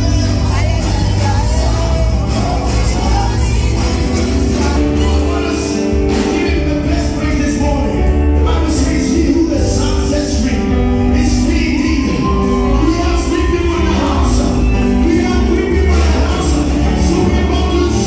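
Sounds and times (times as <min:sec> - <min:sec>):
amplified band accompaniment: 0:00.0 - 0:18.0
heavy bass: 0:00.0 - 0:18.0
worship team singing gospel: 0:00.0 - 0:18.0.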